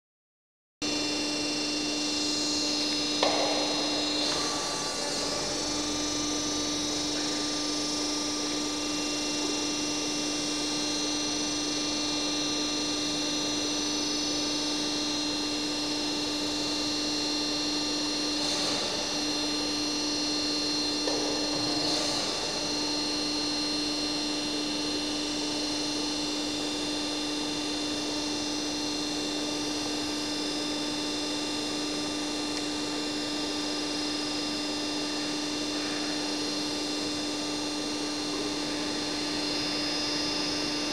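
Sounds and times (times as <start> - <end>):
punch press humming: 0.8 - 13.1, 14.9 - 25.7.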